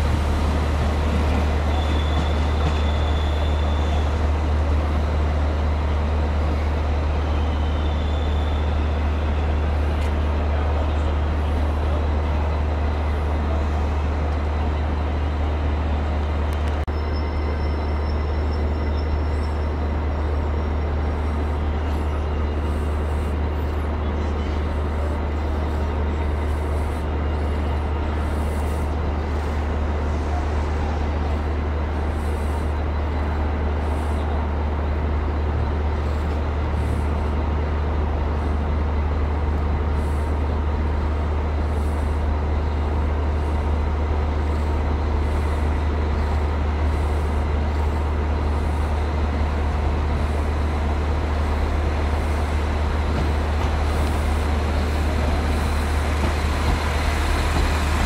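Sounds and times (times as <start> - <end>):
diesel train engine idling: 0.0 - 58.0.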